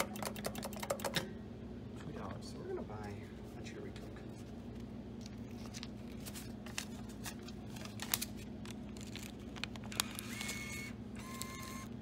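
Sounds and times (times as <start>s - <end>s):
bill acceptor whine: 10.0s - 12.0s.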